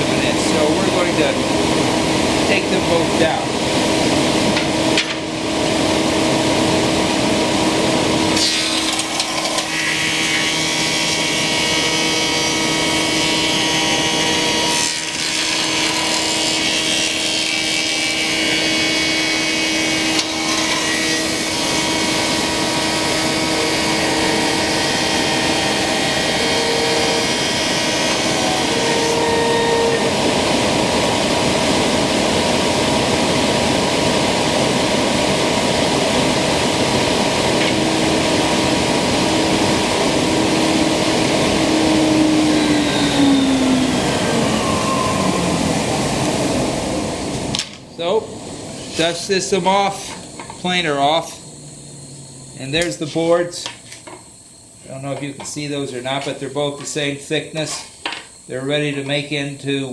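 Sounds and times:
dust collector running: 0:00.0 - 0:59.9
thickness planer planing wood: 0:08.3 - 0:31.6, 0:37.6 - 0:46.7.

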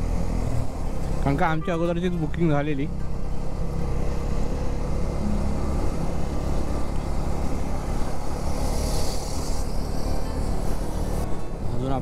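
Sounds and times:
motorcycle engine cruising: 0:00.0 - 0:12.0
wind and road noise: 0:00.0 - 0:12.0
hiss: 0:08.5 - 0:10.0.

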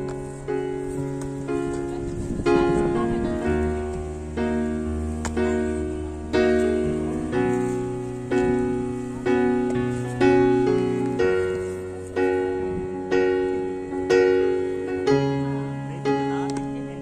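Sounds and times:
slow piano chords: 0:00.0 - 0:17.0.

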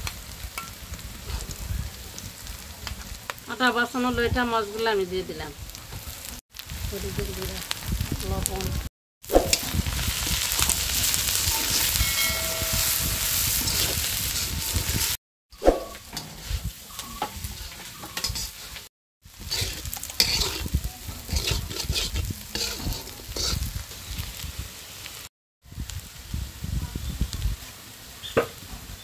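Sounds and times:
food sizzling in hot oil: 0:00.0 - 0:29.0
metal spatula scraping a pan: 0:10.6 - 0:24.1.

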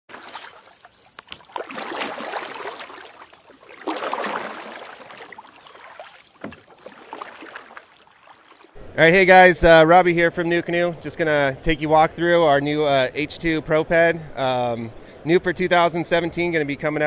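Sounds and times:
water splashing and washing: 0:00.1 - 0:08.8
small drips and clicks: 0:00.6 - 0:01.6.

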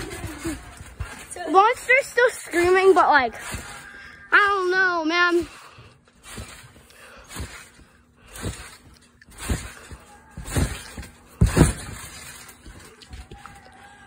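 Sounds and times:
trampoline mat thumping: 0:00.0 - 0:03.8, 0:06.2 - 0:13.6
body landing thud: 0:06.3 - 0:12.9.

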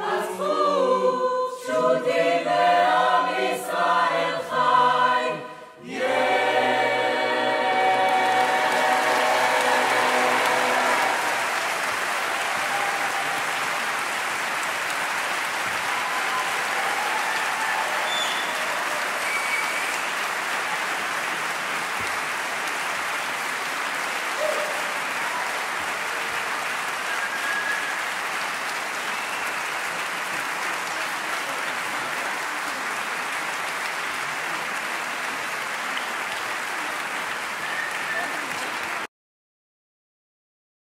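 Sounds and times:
choir singing chord: 0:00.0 - 0:11.9
audience applause: 0:05.8 - 0:39.1
audience calls: 0:05.8 - 0:39.1.

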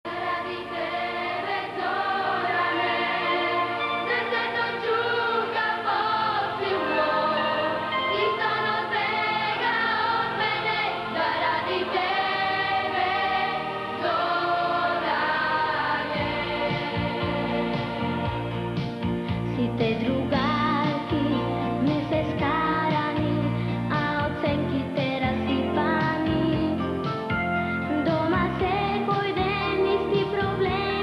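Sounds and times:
children's choir singing: 0:00.1 - 0:18.6
instrumental accompaniment: 0:00.8 - 0:24.2.

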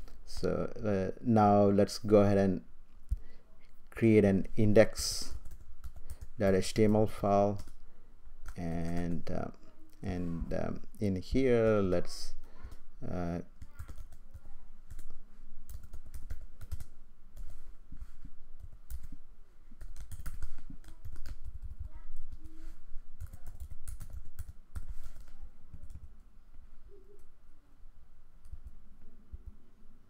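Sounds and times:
computer keyboard typing: 0:05.2 - 0:07.8, 0:13.6 - 0:19.2, 0:19.8 - 0:22.5, 0:23.2 - 0:26.1.

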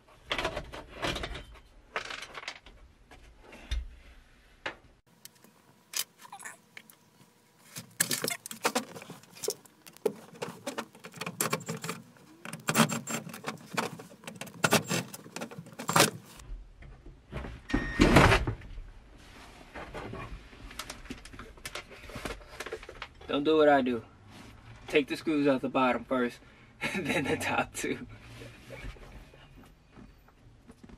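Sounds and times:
plastic glove box rattling: 0:07.8 - 0:16.4.

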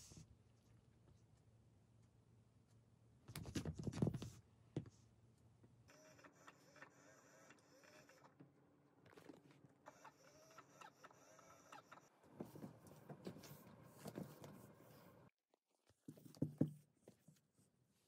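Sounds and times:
faint mechanical whir: 0:05.3 - 0:15.3.

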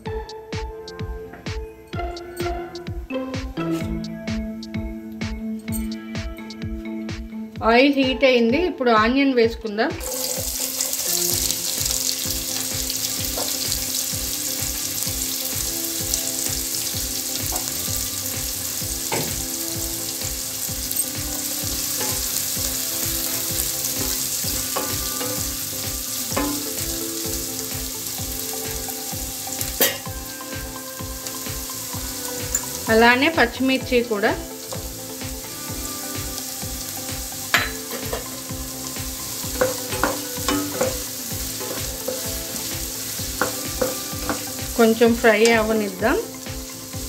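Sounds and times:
onions sizzling in oil: 0:10.0 - 0:47.0
spatula knocking against pan: 0:39.5 - 0:42.4.

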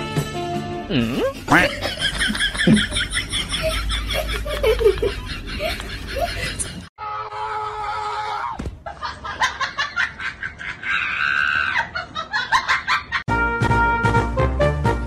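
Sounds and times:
voices shrieking and laughing: 0:01.5 - 0:13.2.

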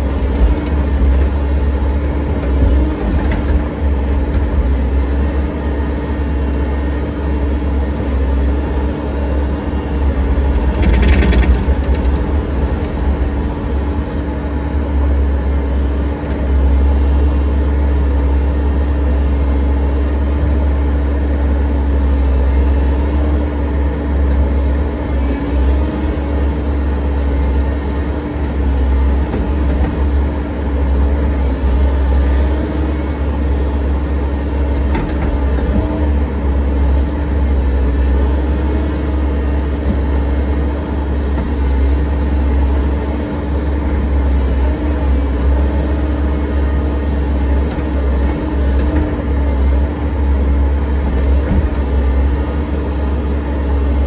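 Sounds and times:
excavator diesel engine running: 0:00.0 - 0:54.0
short clatter: 0:10.5 - 0:13.0.

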